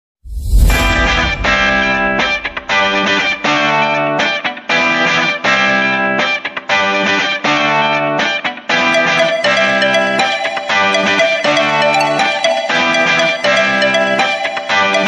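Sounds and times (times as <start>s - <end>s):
guitar chords: 0.7s - 4.3s, 7.0s - 15.0s.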